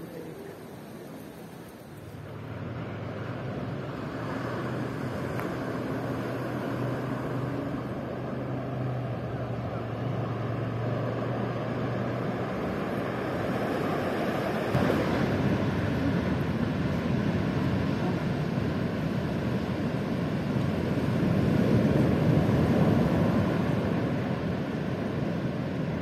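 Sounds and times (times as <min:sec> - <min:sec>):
ocean waves and surf: 0:00.0 - 0:26.0.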